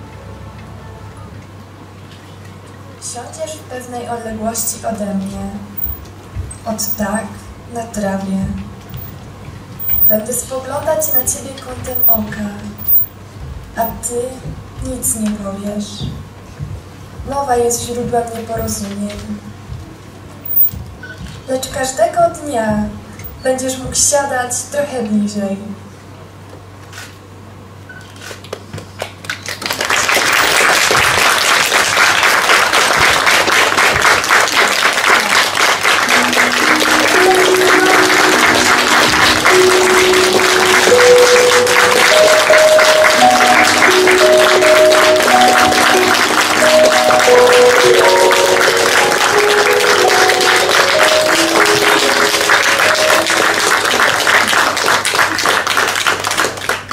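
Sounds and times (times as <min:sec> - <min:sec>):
audience applauding: 0:09.8 - 0:10.2, 0:11.9 - 0:12.2, 0:29.0 - 0:56.9
simple melody of held notes: 0:36.1 - 0:54.4.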